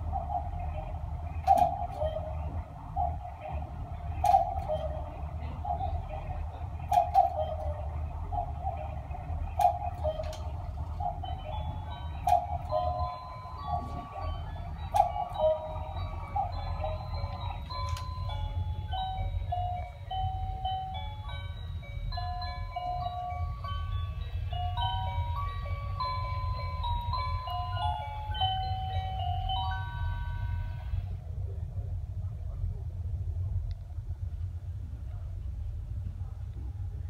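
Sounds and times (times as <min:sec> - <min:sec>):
cuckoo clock calling: 0:00.0 - 0:31.0
electronic melody: 0:00.0 - 0:31.1
sharp clock clicks: 0:01.4 - 0:02.2, 0:04.2 - 0:05.0, 0:06.8 - 0:07.8, 0:09.5 - 0:11.0, 0:12.1 - 0:13.1, 0:14.9 - 0:15.6.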